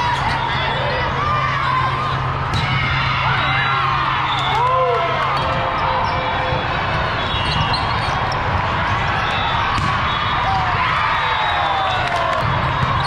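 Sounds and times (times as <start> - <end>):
echoing murmur of people: 0.0 - 13.0
volleyballs smacking and bouncing: 8.4 - 10.2.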